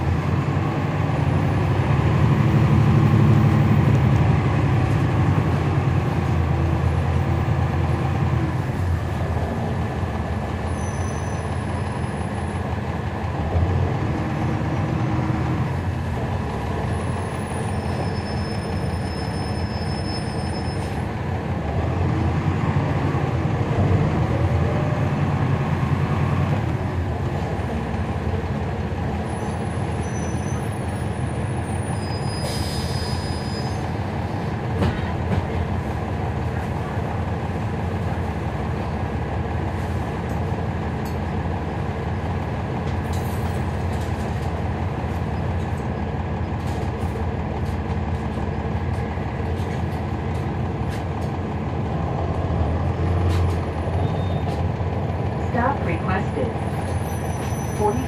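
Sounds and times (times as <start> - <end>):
bus diesel engine drone: 0.0 - 58.0
road and cabin noise: 0.0 - 58.0
high squeal: 17.0 - 21.0, 29.3 - 33.9, 56.9 - 58.0.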